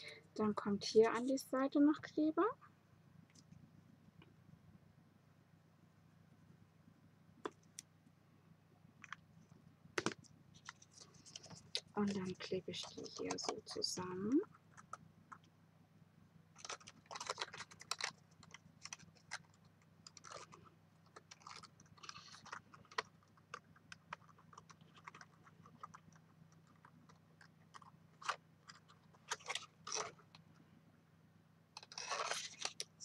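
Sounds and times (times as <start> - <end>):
cardstock crackling and rustling: 10.0 - 15.0, 16.6 - 30.4.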